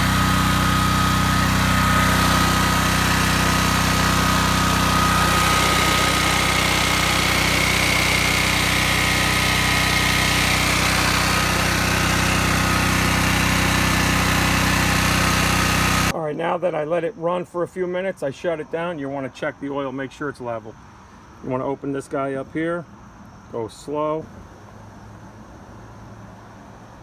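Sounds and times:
thin steady whine: 0.0 - 15.2
generator engine running: 0.0 - 16.2.

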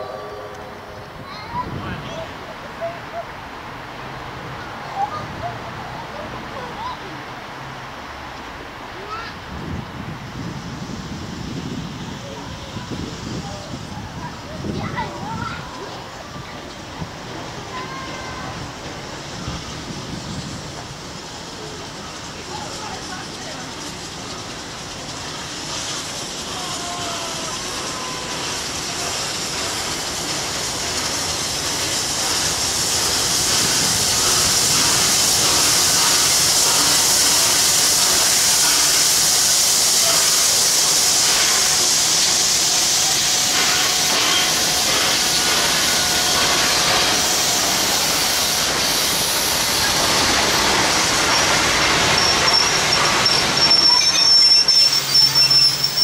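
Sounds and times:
steam locomotive hissing: 0.0 - 56.0
wheels clicking over rail joints: 43.1 - 56.0.

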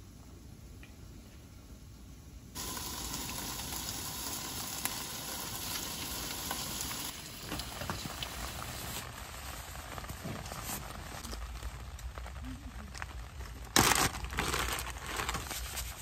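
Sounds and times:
food sizzling in a tin: 2.6 - 10.4
rain pattering on wooden deck: 2.6 - 15.4.

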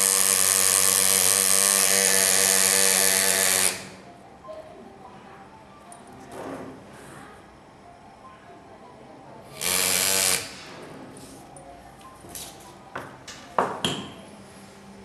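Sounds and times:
pneumatic engraver buzzing: 0.0 - 4.1, 9.5 - 10.8.

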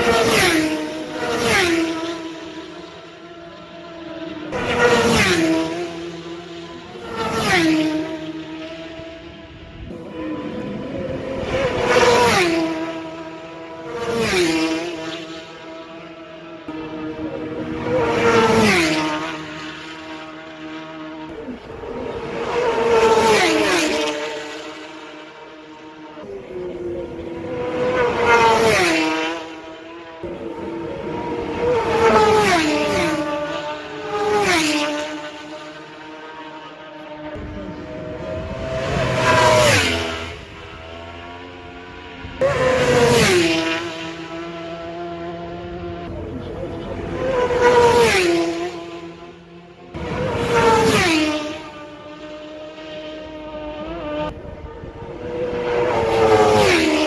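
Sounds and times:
distant motorcycle engines: 0.0 - 57.0
racing motorcycles passing: 0.0 - 57.0.

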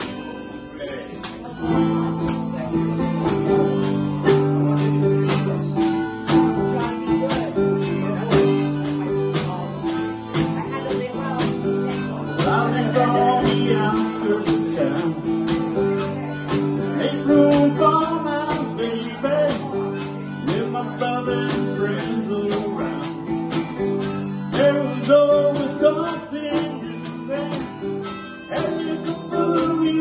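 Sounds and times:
acoustic guitar strumming: 0.0 - 30.0
man singing: 10.8 - 30.0.

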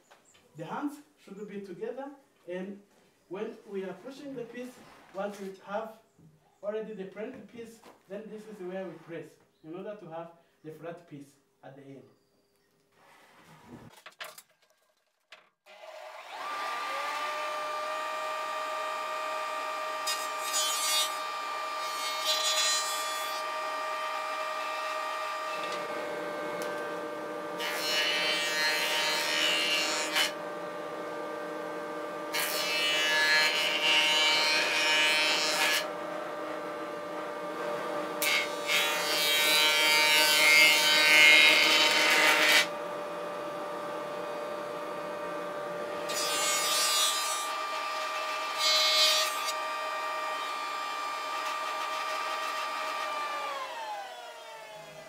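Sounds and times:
planer cutting wooden board: 15.7 - 55.0
planer motor whine: 52.8 - 55.0.

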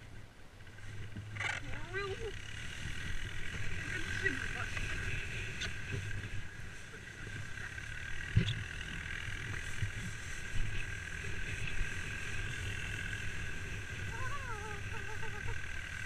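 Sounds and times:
atv engine running: 0.0 - 16.0.

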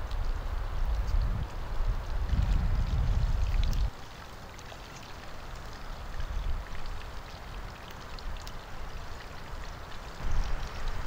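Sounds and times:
wind rumble on microphone: 0.0 - 4.0, 10.1 - 11.0
outdoor hiss: 3.8 - 11.0.

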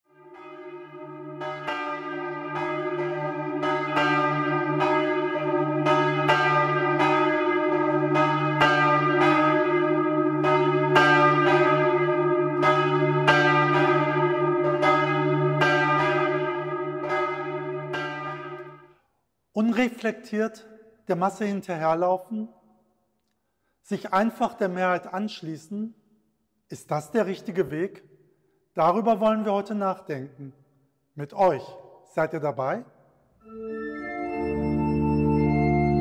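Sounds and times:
church bells ringing: 0.1 - 18.9, 33.6 - 36.0.

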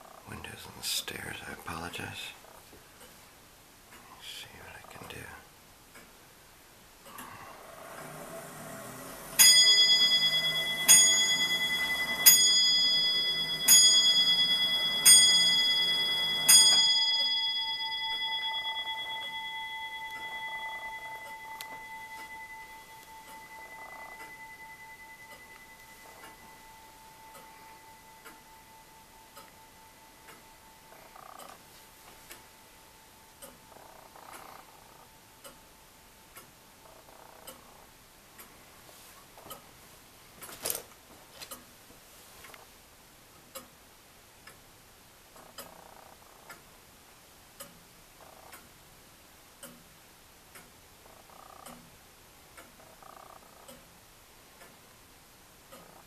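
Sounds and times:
clock ticking: 0.0 - 6.3, 6.9 - 39.8, 43.4 - 56.0
clock bell striking: 8.1 - 31.0.

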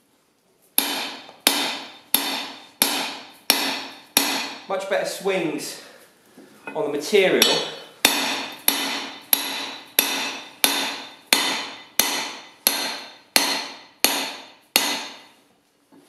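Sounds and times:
hammer striking punch in hot steel: 0.8 - 4.7, 7.4 - 15.3.

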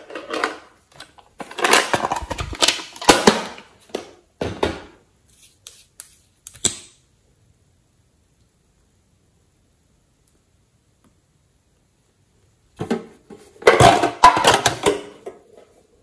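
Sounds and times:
plastic tube rustling and tapping: 0.0 - 4.8.

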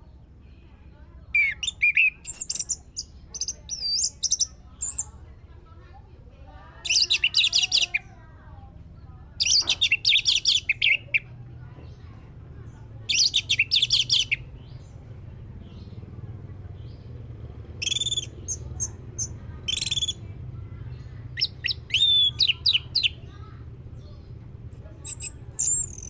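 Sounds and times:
thrush singing whistled phrases: 1.4 - 5.1, 6.8 - 8.1, 9.4 - 11.2, 13.1 - 14.6, 17.8 - 20.4, 21.3 - 23.3, 24.7 - 26.0.

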